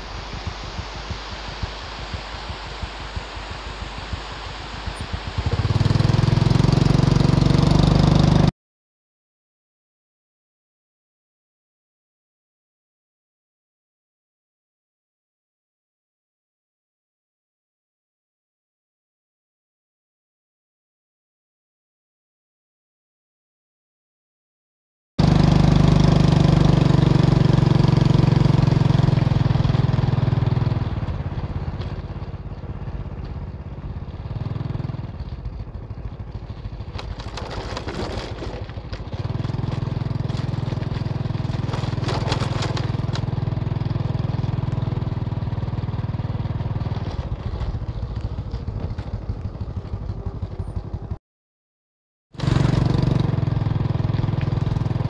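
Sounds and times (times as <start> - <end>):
small motorbike engine running: 0.0 - 8.5, 25.2 - 51.2, 52.4 - 55.0.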